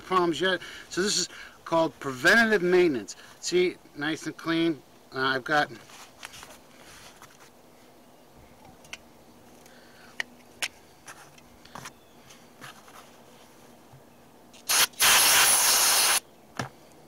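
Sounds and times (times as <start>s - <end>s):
aerosol spray hiss: 14.6s - 16.2s.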